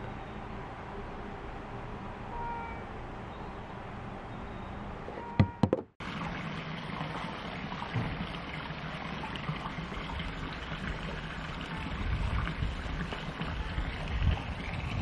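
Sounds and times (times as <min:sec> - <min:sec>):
outdoor background rush: 0:00.0 - 0:15.0
sharp knocks: 0:05.2 - 0:06.0.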